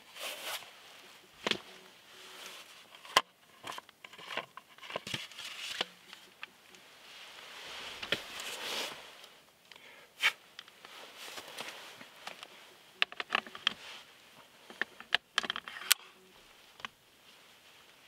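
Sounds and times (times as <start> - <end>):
clothing rustle: 0.0 - 3.6, 5.1 - 9.5, 10.2 - 15.0, 16.0 - 18.0
camera gear clicks and knocks: 14.7 - 16.0.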